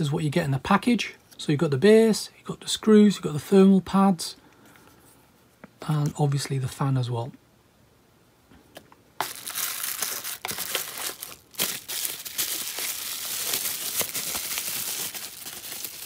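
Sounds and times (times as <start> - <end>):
bubble wrap crinkling: 9.2 - 16.0.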